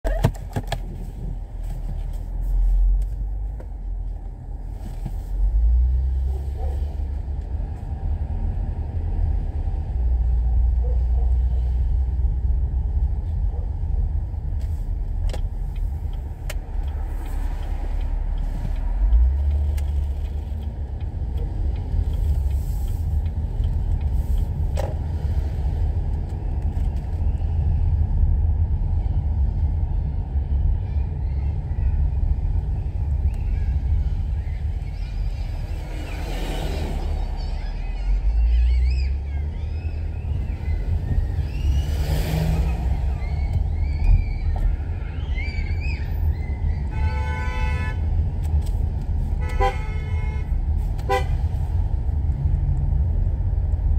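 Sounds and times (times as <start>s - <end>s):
car cabin rumble: 0.0s - 41.9s.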